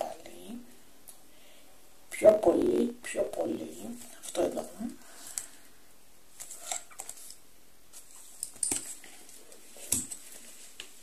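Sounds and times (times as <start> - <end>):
books being handled: 6.3 - 11.0.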